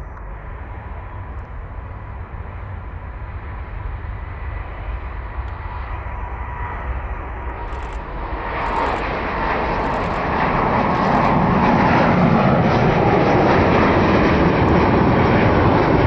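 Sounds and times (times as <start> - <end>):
jet airliner taking off: 0.0 - 16.0.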